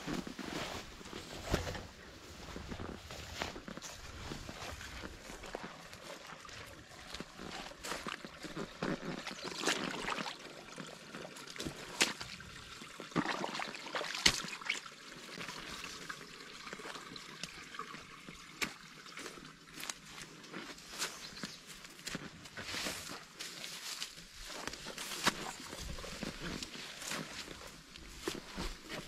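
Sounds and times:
footsteps on trail: 0:00.0 - 0:13.0, 0:15.4 - 0:29.0
water trickling: 0:03.8 - 0:22.1.

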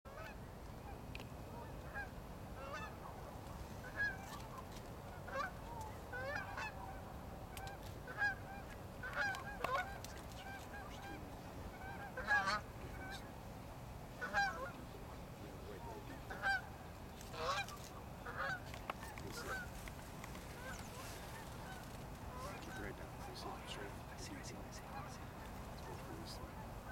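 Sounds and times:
geese honking: 0:00.1 - 0:13.4, 0:14.1 - 0:26.9
low background noise: 0:00.1 - 0:26.9.

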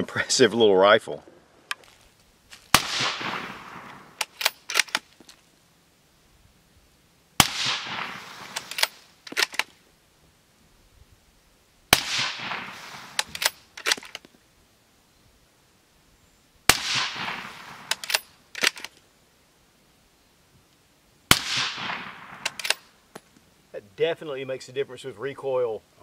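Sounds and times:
suppressed rifle shots with echo: 0:02.7 - 0:05.0, 0:07.4 - 0:09.6, 0:11.9 - 0:13.6, 0:16.7 - 0:18.8, 0:21.3 - 0:23.0
rifle bolt clicks: 0:03.9 - 0:05.2, 0:08.4 - 0:09.8, 0:13.2 - 0:14.3, 0:17.8 - 0:19.0, 0:21.6 - 0:23.3.

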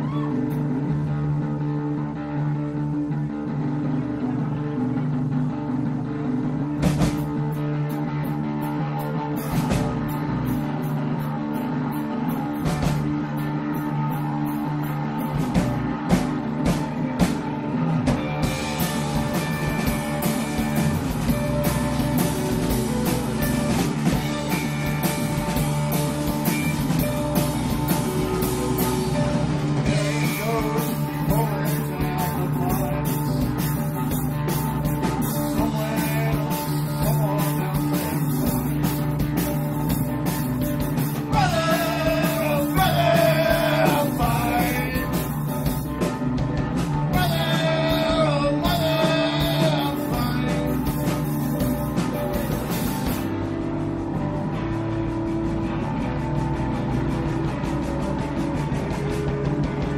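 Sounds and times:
rock band playing: 0:00.0 - 0:59.9
cymbals and drums: 0:09.4 - 0:54.1
man singing: 0:29.9 - 0:33.6, 0:35.4 - 0:38.6, 0:41.3 - 0:45.4, 0:47.1 - 0:51.0.

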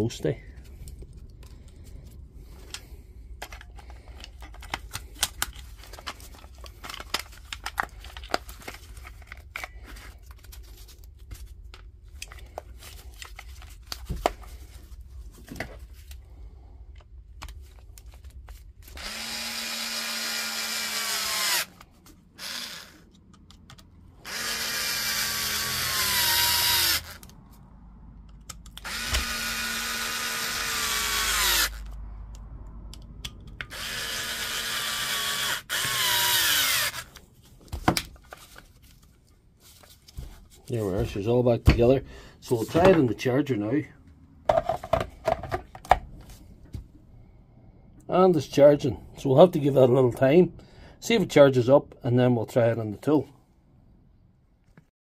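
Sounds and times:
cordless screwdriver whine: 0:18.9 - 0:21.8, 0:22.4 - 0:23.1, 0:24.2 - 0:27.4, 0:28.8 - 0:32.0, 0:33.7 - 0:37.2.

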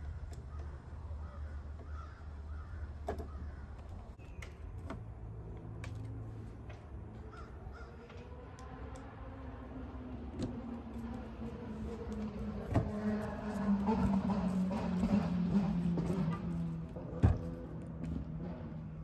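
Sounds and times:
steady low hum: 0:00.0 - 0:19.0
crows cawing: 0:00.4 - 0:03.9, 0:07.2 - 0:08.2.

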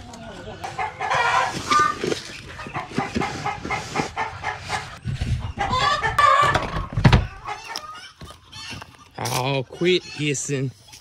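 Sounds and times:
poultry clucking: 0:00.0 - 0:11.0.

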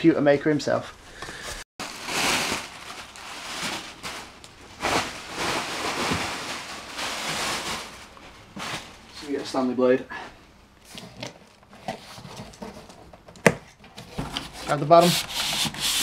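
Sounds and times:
packaging rustling and handling: 0:01.2 - 0:09.6.

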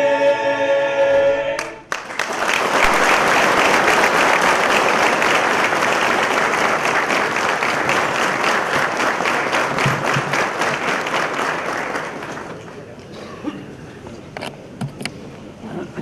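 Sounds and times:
audience applauding: 0:01.6 - 0:13.0.

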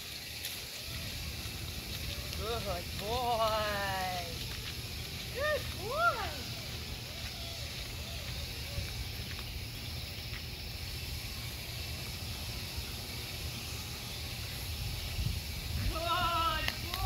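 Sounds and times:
faint hiss: 0:00.0 - 0:17.0
wind rumble on microphone: 0:14.4 - 0:17.0.

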